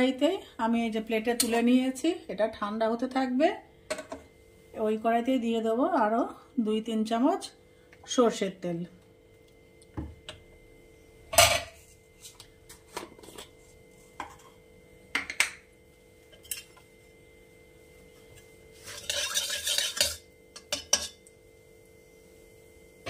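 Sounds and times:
metal spatula scraping pan: 18.8s - 21.2s
metal utensils clinking on pan: 18.8s - 21.3s.

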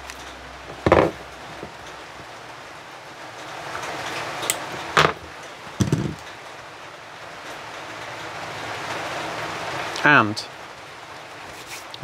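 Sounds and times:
steady low hiss: 0.0s - 12.0s
tools knocking on wooden bench: 0.7s - 1.7s, 5.0s - 6.2s.

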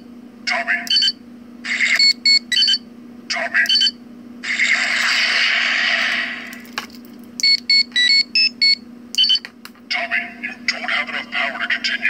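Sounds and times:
short electronic beeps: 2.0s - 2.8s, 3.7s - 4.0s, 7.4s - 9.4s.

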